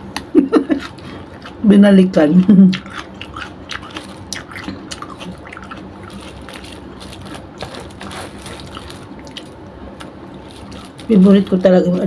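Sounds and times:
wet chewing and mouth noises: 0.6s - 1.8s, 2.4s - 12.0s
fingers picking through food: 2.7s - 12.0s.

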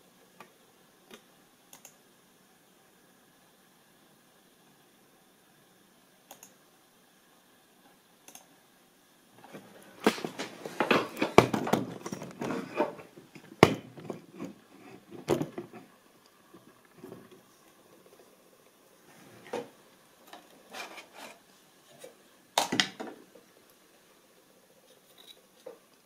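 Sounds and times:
light clicks: 6.3s - 6.6s.

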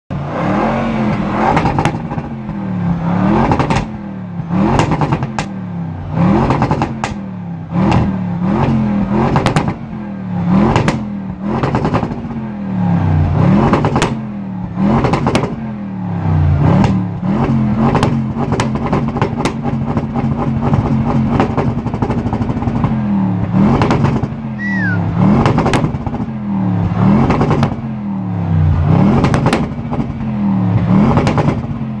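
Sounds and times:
engine revving in blips: 0.1s - 32.0s
exhaust pops and crackles: 1.1s - 2.6s, 3.4s - 4.0s, 6.4s - 7.2s, 9.3s - 9.8s, 10.7s - 12.4s, 13.6s - 14.2s, 15.0s - 15.6s, 17.8s - 23.0s, 23.7s - 24.4s, 25.4s - 27.8s, 29.1s - 30.2s, 31.1s - 32.0s.

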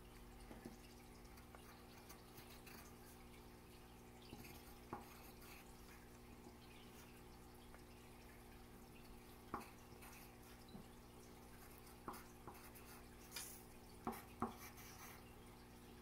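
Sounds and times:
pencil writing on paper: 4.3s - 5.7s, 9.5s - 10.6s, 11.6s - 13.4s, 14.0s - 15.2s.

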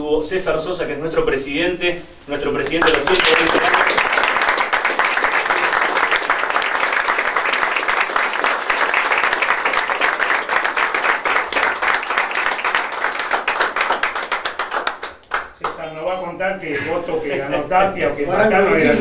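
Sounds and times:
group applauding: 2.6s - 16.1s.

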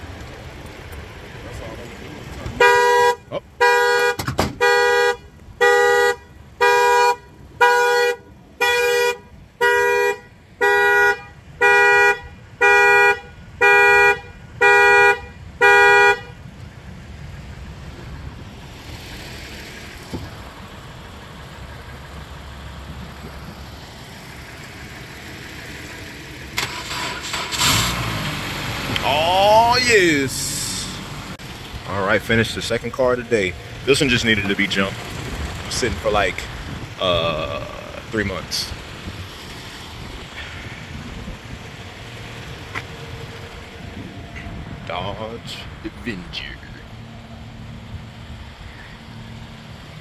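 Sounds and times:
faint outdoor background: 0.0s - 50.0s
car horn honking in alarm pattern: 2.6s - 16.5s.

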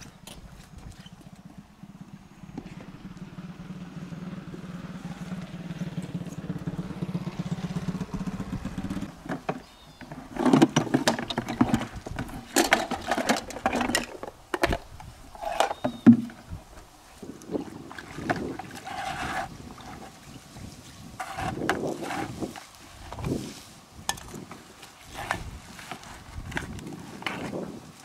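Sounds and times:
small engine humming: 0.4s - 10.1s.

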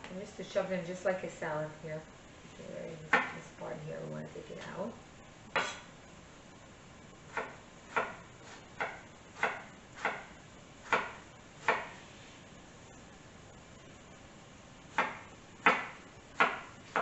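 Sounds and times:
knife chopping on wooden board: 5.5s - 5.9s, 7.3s - 12.0s, 14.9s - 17.0s.

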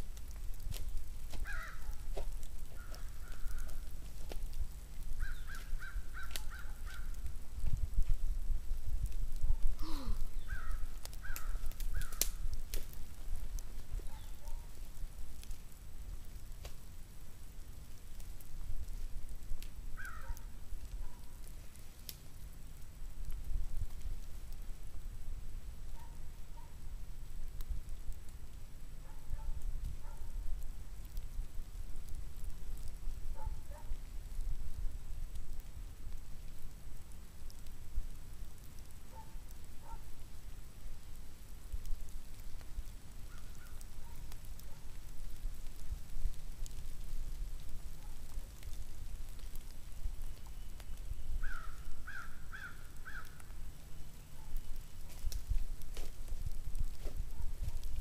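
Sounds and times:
wind rumble on microphone: 0.0s - 15.5s, 54.4s - 58.0s
leaves crunching: 0.7s - 4.6s, 5.2s - 7.1s
faint ticks: 9.0s - 16.9s, 17.8s - 24.6s, 30.6s - 58.0s.

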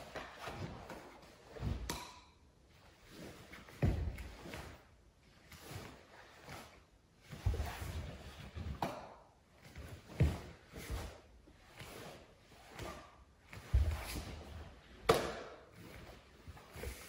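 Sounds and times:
cloth swishing and rustling: 2.7s - 8.8s, 9.5s - 15.1s
bare feet thudding on floor: 3.7s - 4.8s, 7.3s - 11.2s, 12.7s - 17.0s.

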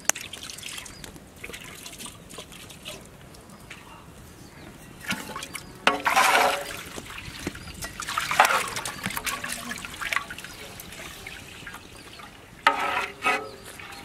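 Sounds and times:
water sloshing in a pot: 4.8s - 14.0s.

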